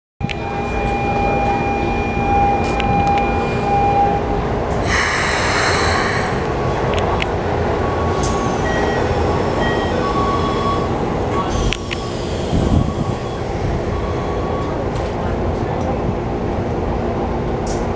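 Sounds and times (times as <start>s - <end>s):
train equipment humming: 0.2s - 17.9s
loud hiss: 4.8s - 6.4s.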